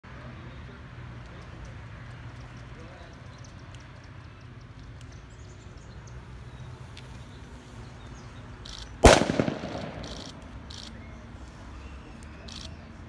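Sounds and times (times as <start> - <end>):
firework bang with echo: 9.0 - 10.3.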